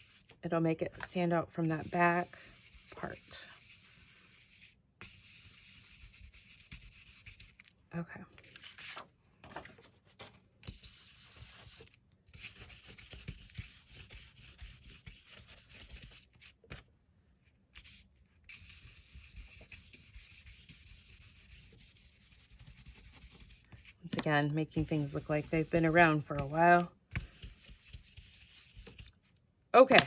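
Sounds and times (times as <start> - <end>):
foam tool rasping on paper: 0.0 - 0.3, 1.0 - 7.7, 10.6 - 16.5, 17.8 - 24.0, 24.6 - 29.2.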